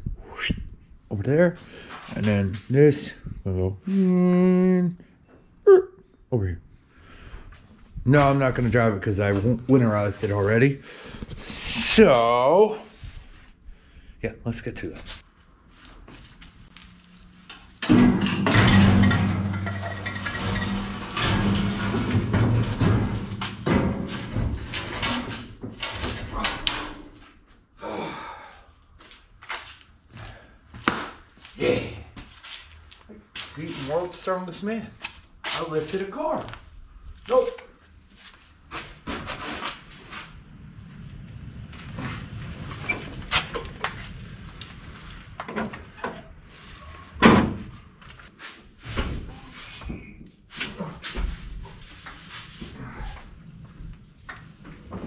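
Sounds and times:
irregular knocks and clunks: 0:17.8 - 0:26.0.

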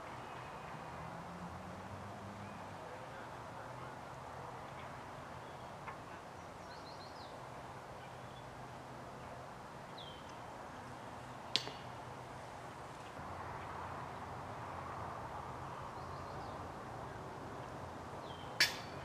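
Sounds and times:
small birds chirping: 0:04.8 - 0:08.6, 0:18.2 - 0:19.0.

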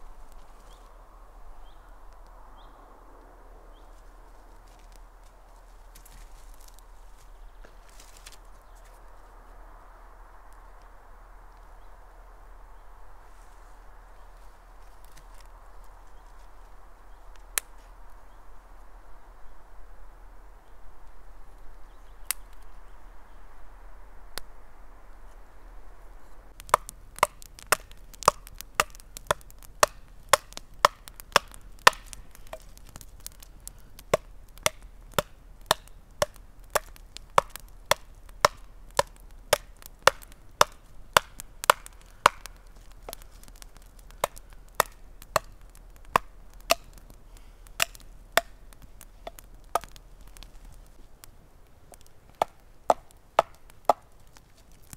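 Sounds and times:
soft steady hiss: 0:00.0 - 0:54.9
hatchet chopping wood: 0:26.6 - 0:33.0, 0:34.1 - 0:47.1, 0:47.8 - 0:48.6, 0:49.2 - 0:50.0, 0:52.3 - 0:54.1.

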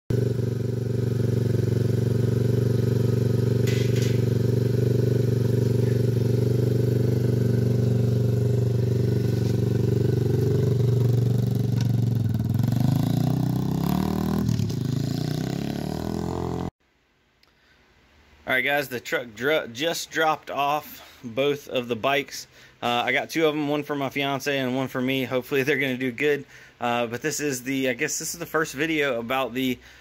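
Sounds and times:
motorbike engine idling and revving: 0:00.1 - 0:16.7.

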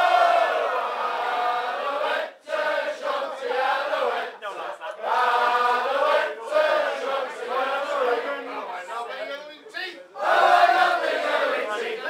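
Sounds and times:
group of men singing: 0:00.0 - 0:08.8.

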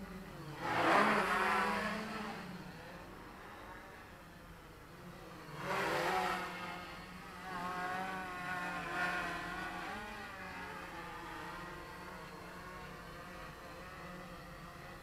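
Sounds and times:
drone motors and propellers whining: 0:00.0 - 0:15.0.

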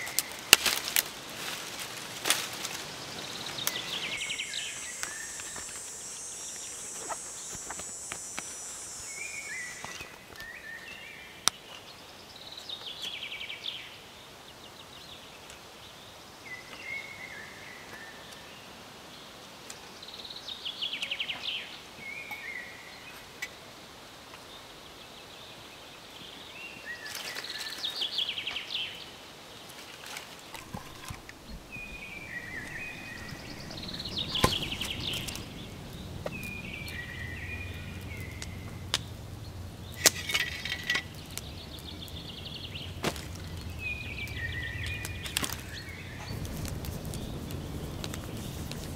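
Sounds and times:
high steady hiss: 0:00.0 - 0:48.9
noise burst: 0:02.8 - 0:10.4, 0:30.6 - 0:40.2, 0:41.1 - 0:48.9
songbird singing trills: 0:02.9 - 0:11.4, 0:30.5 - 0:48.9.

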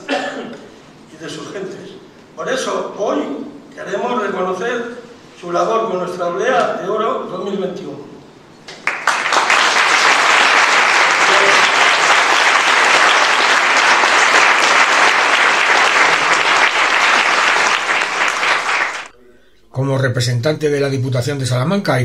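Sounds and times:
audience clapping: 0:08.7 - 0:19.2.

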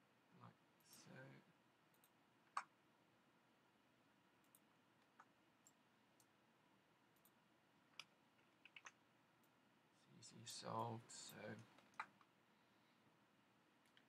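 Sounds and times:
computer mouse clicks: 0:01.9 - 0:02.8, 0:04.4 - 0:06.4, 0:07.2 - 0:09.6, 0:10.8 - 0:12.3.

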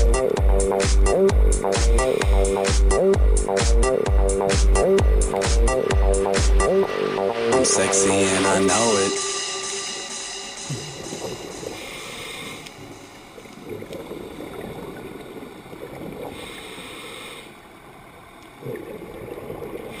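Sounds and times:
underwater rumble: 0:10.5 - 0:20.0
regulator hissing inhalation: 0:10.6 - 0:12.9, 0:16.3 - 0:17.6
bubbling exhalations: 0:13.6 - 0:17.0, 0:18.6 - 0:20.0.

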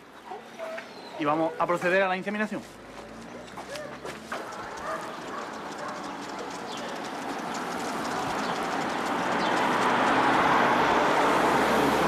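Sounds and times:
vehicle passing with rushing noise: 0:02.9 - 0:12.0.

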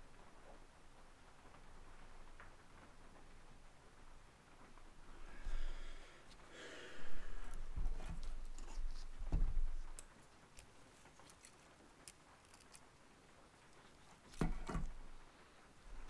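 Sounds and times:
light clicks of small parts: 0:09.8 - 0:14.5.

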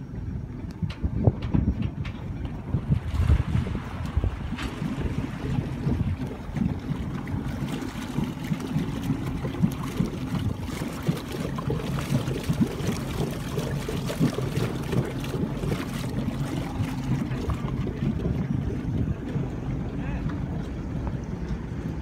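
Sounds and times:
boat engine idling burble: 0:00.0 - 0:22.0
exhaust bubbling in water: 0:00.4 - 0:22.0.

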